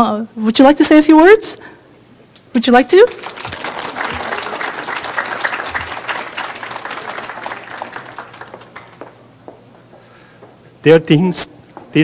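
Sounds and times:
audience applauding: 3.0s - 9.3s.

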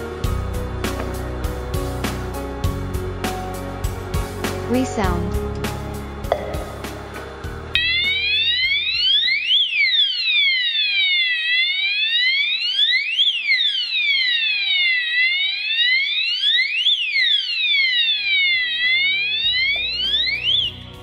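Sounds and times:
fire alarm siren wailing: 7.7s - 21.0s.

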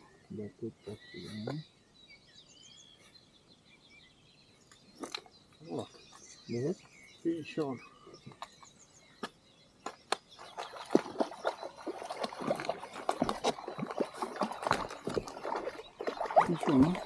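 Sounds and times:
fish splashing in water: 10.1s - 17.0s.

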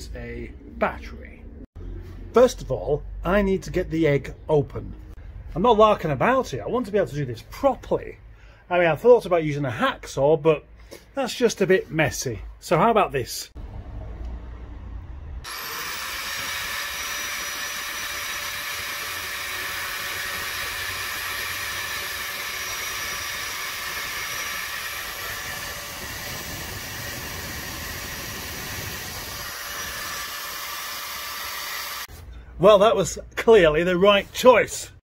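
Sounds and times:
angle grinder whining: 15.4s - 32.2s.

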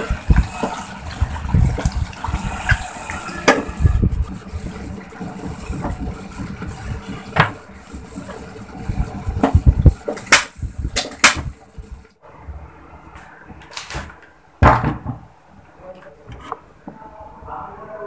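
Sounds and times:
pot of food bubbling: 0.0s - 12.2s.

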